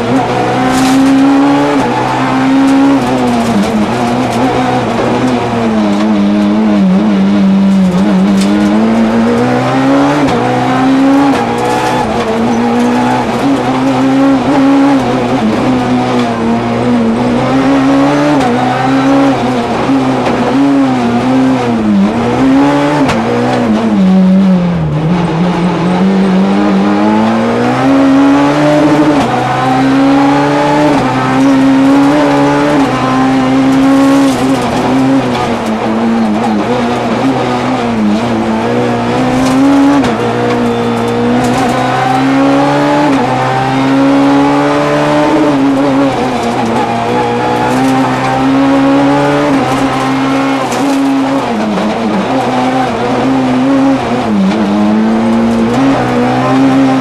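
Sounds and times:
rally car engine revving: 0.0s - 57.0s.

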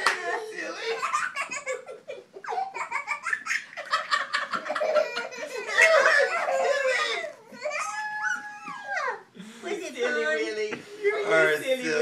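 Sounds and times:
child laughing: 0.2s - 9.3s
adults laughing: 0.7s - 7.4s.

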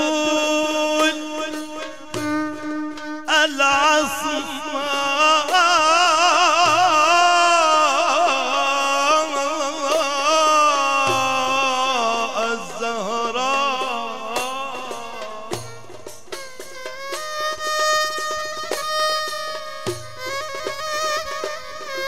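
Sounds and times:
man singing melismatic line: 0.0s - 2.6s, 3.2s - 16.1s.

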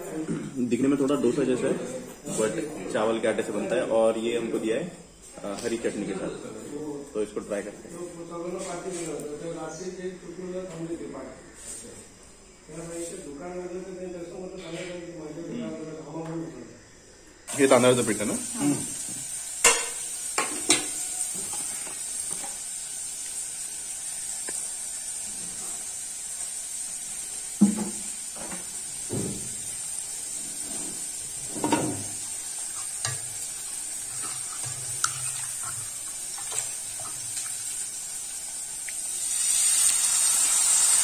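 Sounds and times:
gas stove hiss: 16.6s - 41.0s
batter sizzling on hot pan: 17.5s - 41.0s.

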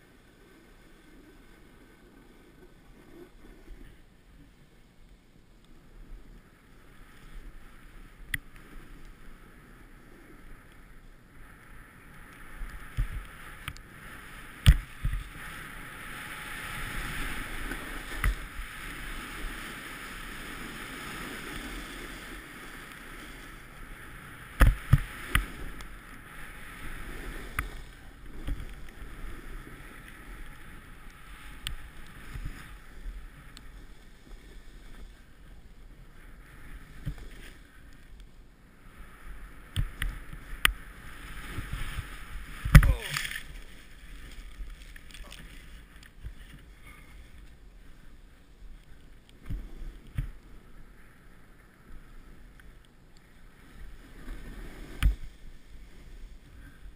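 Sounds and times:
snowboard swishing through powder: 11.8s - 37.8s, 39.0s - 47.2s, 53.6s - 56.9s.

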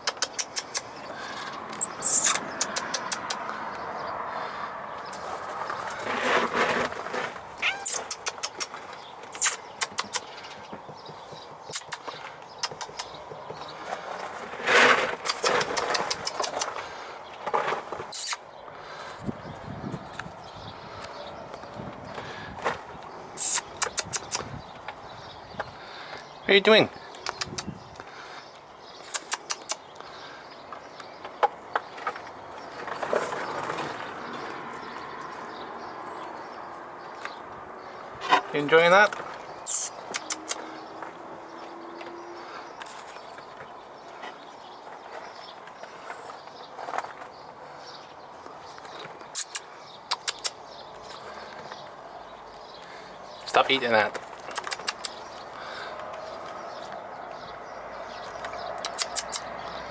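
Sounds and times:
cat chewing clicks: 40.1s - 40.6s, 49.4s - 50.6s, 54.4s - 55.2s.

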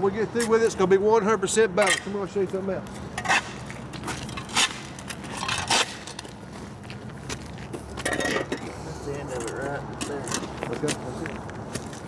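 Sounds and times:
footsteps crunching on gritty ground: 2.4s - 8.1s, 9.5s - 12.0s
shovel scraping soil: 4.4s - 6.2s.

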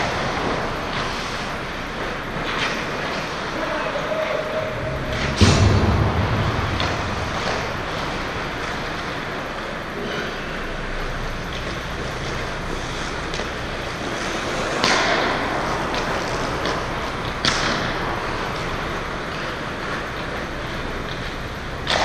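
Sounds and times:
skates scraping ice: 0.0s - 5.4s, 6.7s - 22.0s
steady rushing noise: 0.0s - 21.8s
sharp thump: 5.1s - 8.1s.

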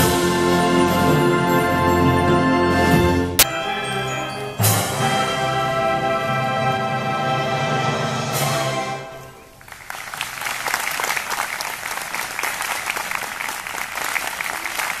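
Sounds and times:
orchestra holding chord: 0.0s - 9.4s
audience applause: 9.5s - 15.0s.

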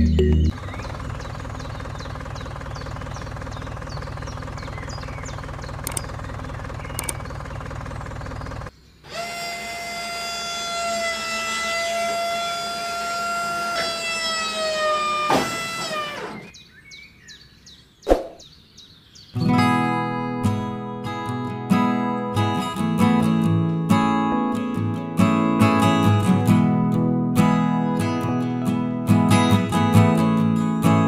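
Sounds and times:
low motor drone: 0.0s - 9.2s
high-pitched electric motor whine: 9.0s - 16.6s.

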